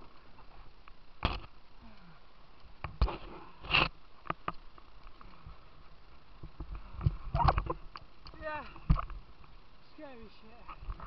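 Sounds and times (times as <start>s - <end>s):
sharp knocks and scrapes: 2.9s - 4.6s.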